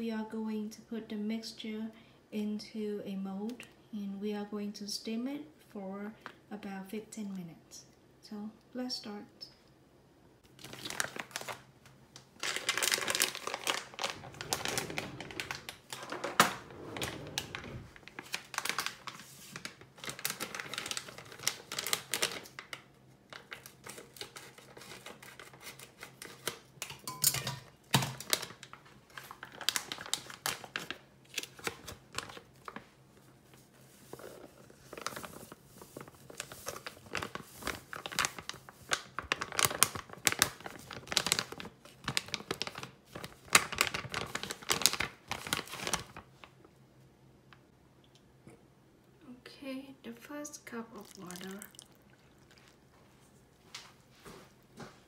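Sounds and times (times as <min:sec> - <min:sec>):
flour packet rustling and crackling: 0:10.5 - 0:16.4, 0:17.0 - 0:26.9, 0:27.8 - 0:46.7.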